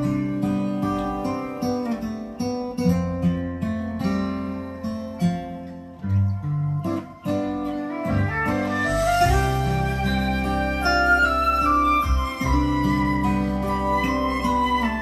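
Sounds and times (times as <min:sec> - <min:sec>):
acoustic guitar music: 0:00.0 - 0:15.0
bass line: 0:08.0 - 0:15.0.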